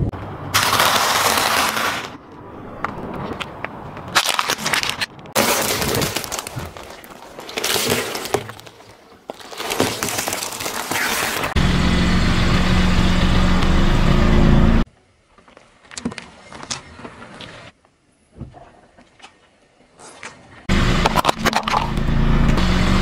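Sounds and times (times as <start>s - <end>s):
objects cracking and breaking: 0.6s - 2.2s, 4.1s - 11.6s
eggshells cracking under a tyre: 0.6s - 11.6s
loud low hum: 11.6s - 14.8s, 20.7s - 23.0s.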